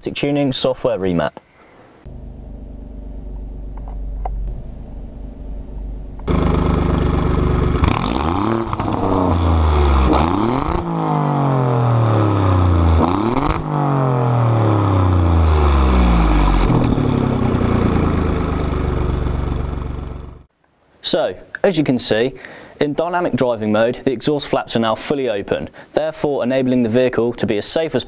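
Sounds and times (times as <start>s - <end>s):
car engine revving: 2.1s - 20.5s.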